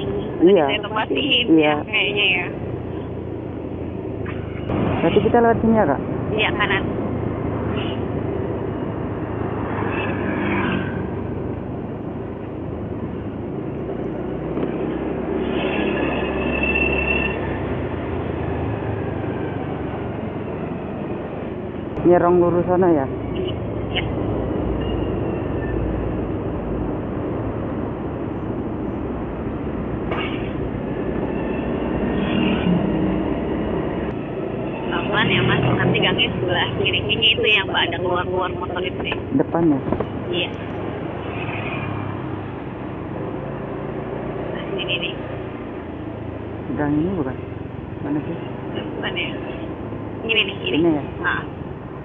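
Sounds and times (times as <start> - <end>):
wind and road noise: 0.0 - 52.0
motorcycle engine hum: 2.0 - 16.2.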